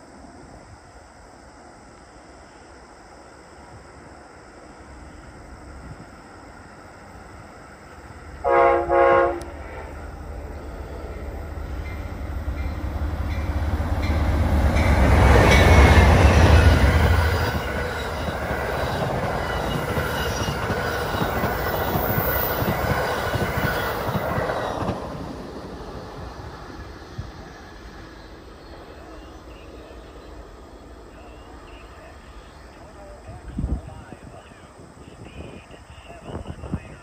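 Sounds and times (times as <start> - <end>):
locomotive engine rumble: 5.1 - 37.0
train horn blasts: 8.4 - 10.1
train cars clickety-clack: 11.7 - 26.4.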